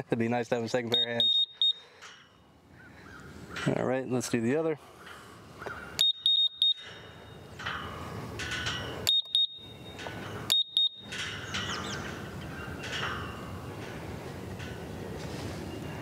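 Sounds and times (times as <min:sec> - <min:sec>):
short high beeps: 0:01.0 - 0:01.8, 0:06.0 - 0:06.9, 0:09.1 - 0:11.1.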